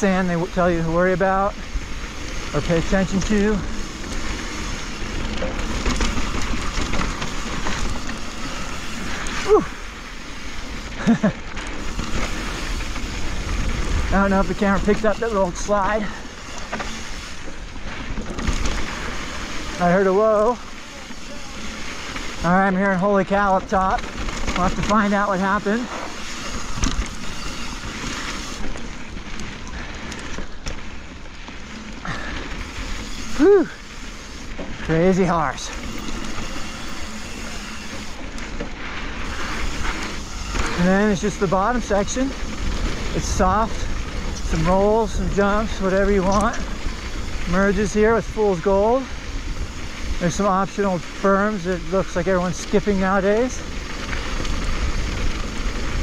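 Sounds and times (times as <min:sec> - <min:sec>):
bike tyres crunching on dirt: 0:00.0 - 0:56.0
person crying out: 0:09.4 - 0:09.8, 0:33.4 - 0:33.8.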